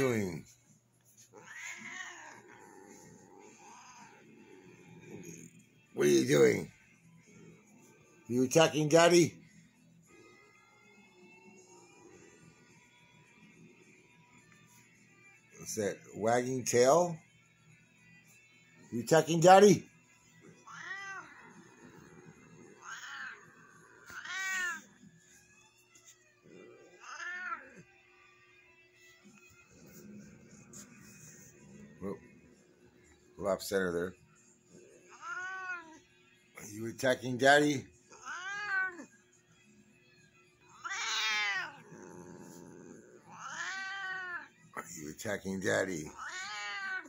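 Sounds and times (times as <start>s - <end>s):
cat meowing: 1.3s - 4.3s, 20.5s - 21.8s, 22.7s - 24.9s, 26.7s - 27.9s, 35.1s - 36.0s, 38.1s - 39.1s, 40.7s - 44.5s, 46.1s - 47.0s.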